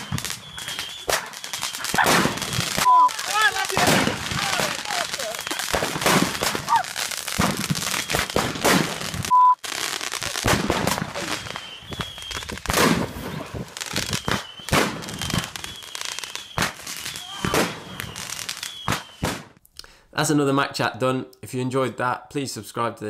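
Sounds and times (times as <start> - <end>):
fireworks bangs and crackles: 0.0 - 19.6
fireworks whistles: 0.0 - 19.6
short steady beep: 2.8 - 3.2, 9.3 - 9.6.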